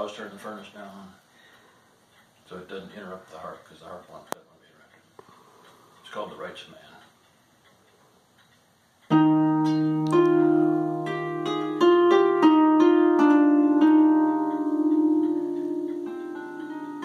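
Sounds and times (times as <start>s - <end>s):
harp plucked: 9.1s - 17.0s.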